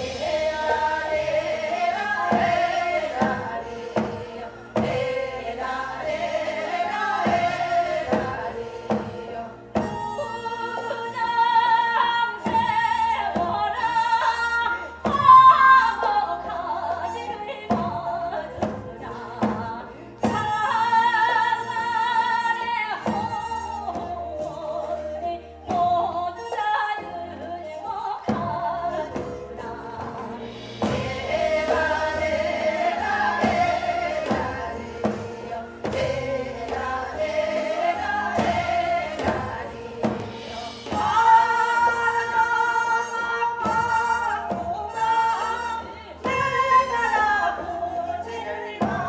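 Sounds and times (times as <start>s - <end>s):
drum striking steady beat: 0.0s - 11.0s, 28.3s - 47.2s
traditional instruments playing: 0.0s - 20.2s, 28.5s - 49.0s
woman singing with vibrato: 0.0s - 49.0s.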